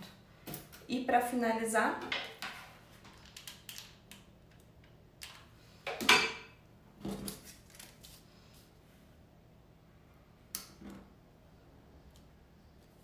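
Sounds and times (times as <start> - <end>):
paper rustling: 7.2 - 8.7.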